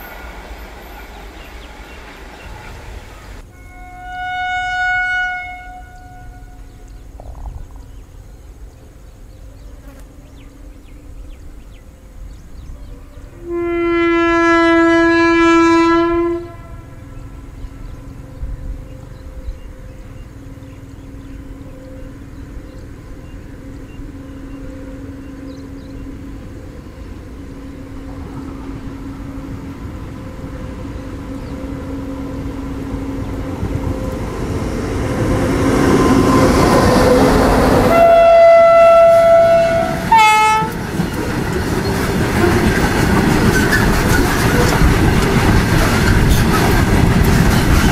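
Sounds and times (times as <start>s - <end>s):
train approaching: 0.0s - 47.9s
locomotive horn blast: 0.8s - 7.0s, 13.0s - 41.0s
wagon wheels clattering: 40.7s - 47.9s.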